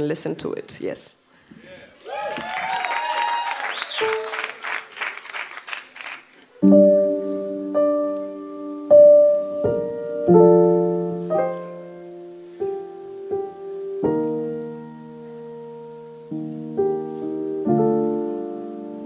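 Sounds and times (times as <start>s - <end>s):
slow piano chords: 6.6s - 19.0s.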